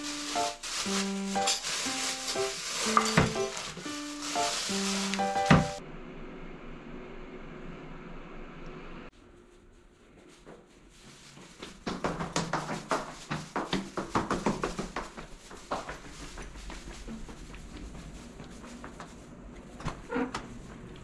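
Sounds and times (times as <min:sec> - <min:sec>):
footsteps going down stairs: 0:00.0 - 0:05.8, 0:10.1 - 0:21.0.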